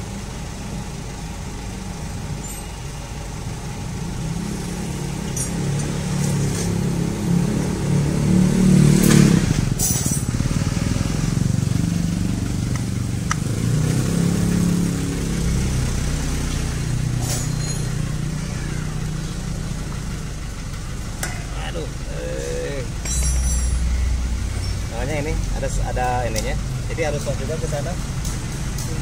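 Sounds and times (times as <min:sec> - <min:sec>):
motor vehicle engine running: 0:00.0 - 0:29.0.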